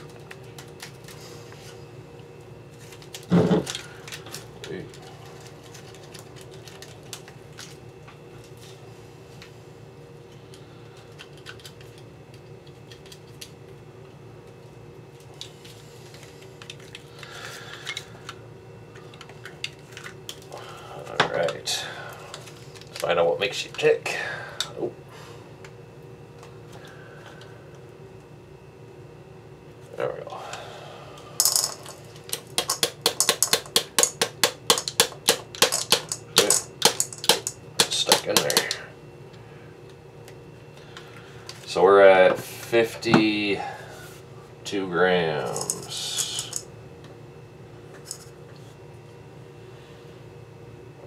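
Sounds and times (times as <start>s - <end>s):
steady low hum: 0.0s - 51.0s
small objects clicking and tapping: 31.4s - 38.8s.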